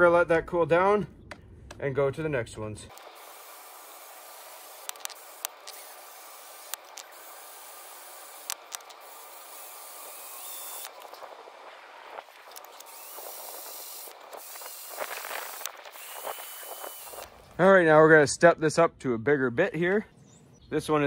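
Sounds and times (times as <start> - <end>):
sharp clicks: 2.9 - 3.2, 4.8 - 6.0, 6.6 - 7.2, 8.4 - 9.1, 10.5 - 11.3, 12.2 - 17.4
cordless drill boring into metal: 2.9 - 11.2, 12.4 - 17.4.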